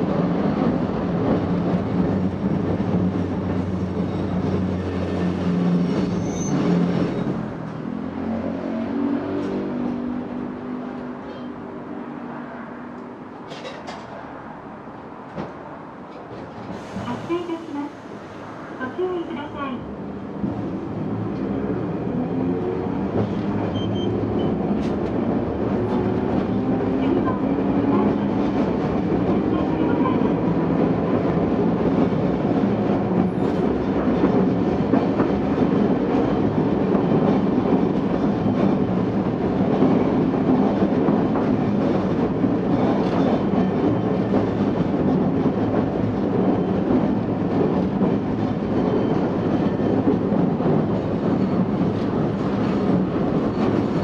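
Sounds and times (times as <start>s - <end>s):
wheels rumbling on rails: 18.8s - 54.0s.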